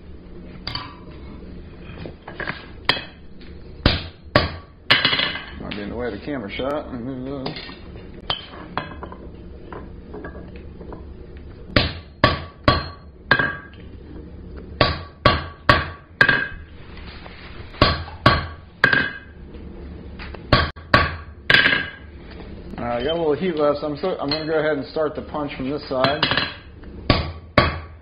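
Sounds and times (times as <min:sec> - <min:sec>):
hammer striking punch on metal: 0:03.8 - 0:05.5, 0:11.8 - 0:13.7, 0:14.8 - 0:16.6, 0:17.8 - 0:19.3, 0:20.5 - 0:22.0, 0:26.0 - 0:28.0.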